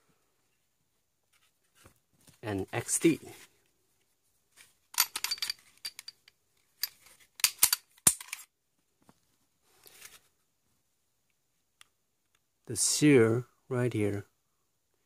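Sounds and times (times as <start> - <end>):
pistol metal clicks and rattles: 4.9 - 8.5.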